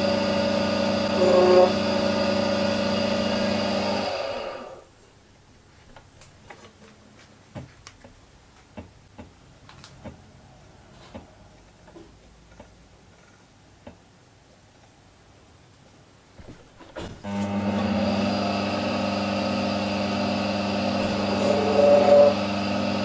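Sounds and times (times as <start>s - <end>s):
lathe motor spinning down: 0.0s - 4.8s, 17.2s - 23.0s.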